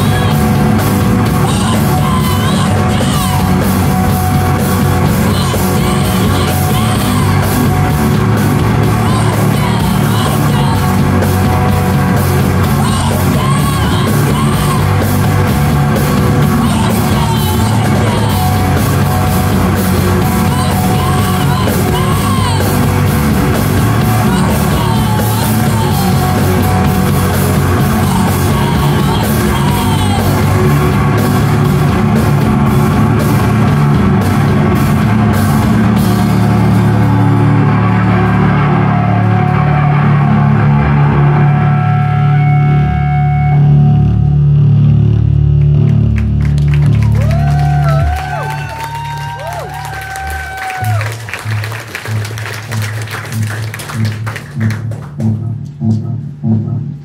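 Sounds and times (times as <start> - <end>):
yelled sung vocals: 0.0 - 43.6
drums: 0.0 - 57.0
live rock band playing: 0.0 - 57.0.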